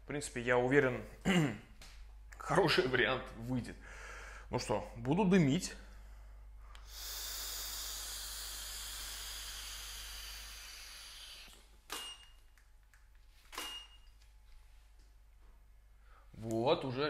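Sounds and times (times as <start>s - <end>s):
hissing vape exhale: 6.7s - 11.6s.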